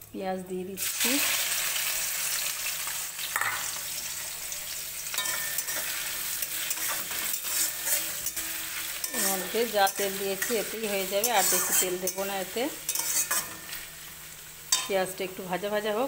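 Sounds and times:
onions sizzling in hot oil: 0.1 - 16.0
spoon scraping and knocking pan: 3.3 - 3.8, 5.1 - 13.9, 14.7 - 15.0.

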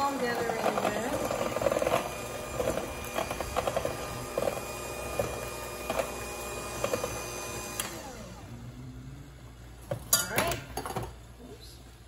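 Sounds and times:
electric hand mixer whirring: 0.0 - 9.9.

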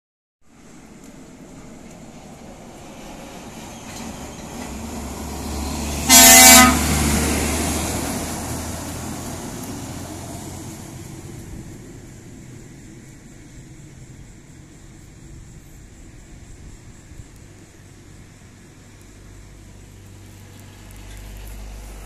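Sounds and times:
truck diesel engine drone: 0.8 - 15.3, 17.7 - 22.0
truck horn blast: 5.8 - 7.4.

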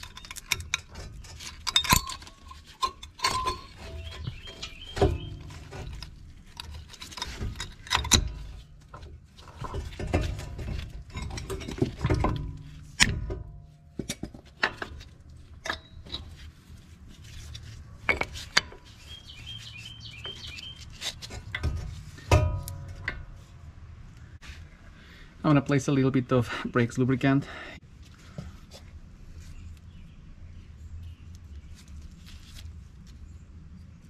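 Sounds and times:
metallic clicks and clinks: 0.0 - 8.5.

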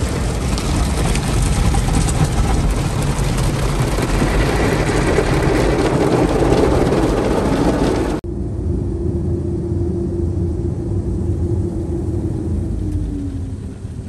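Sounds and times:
car wash brushes and water spray: 0.0 - 8.2.

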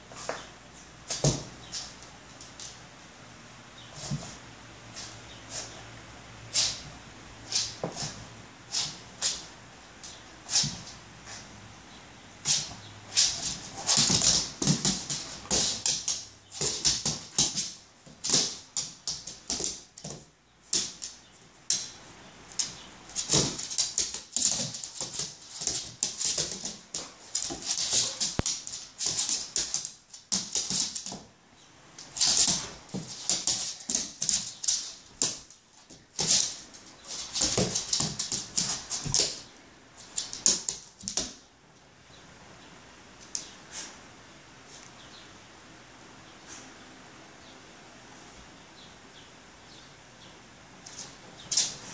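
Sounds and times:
dog claws scrabbling on floor: 12.4 - 31.2, 32.0 - 41.4.

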